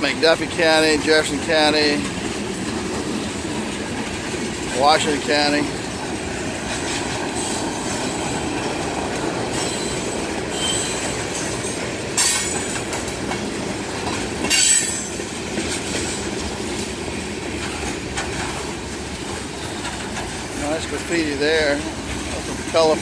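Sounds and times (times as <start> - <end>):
train wheels rumbling on rail: 0.0 - 23.0
wheel squeal: 9.5 - 11.6.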